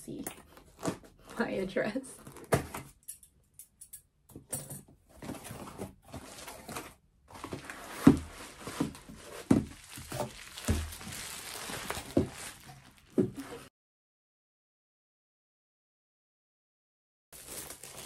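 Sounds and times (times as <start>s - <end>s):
bubble-wrap crinkling: 6.1s - 13.7s, 17.4s - 18.0s.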